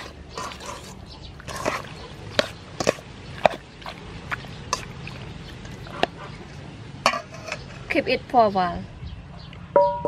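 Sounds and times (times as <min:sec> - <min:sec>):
wet squelching: 0:00.0 - 0:06.7.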